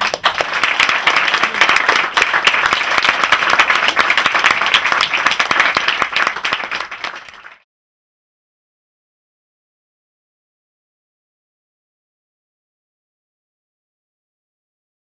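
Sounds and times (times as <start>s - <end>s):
small crowd applauding: 0.0s - 7.7s.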